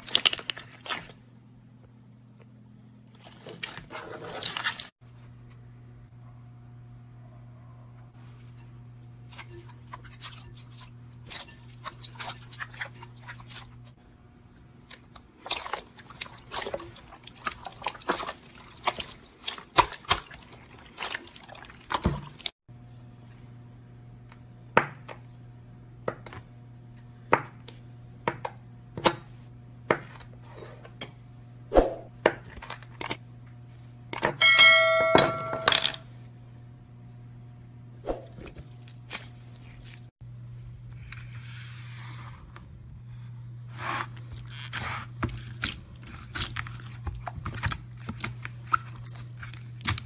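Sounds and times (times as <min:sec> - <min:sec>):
steady low hum: 0:22.7 - 0:50.0.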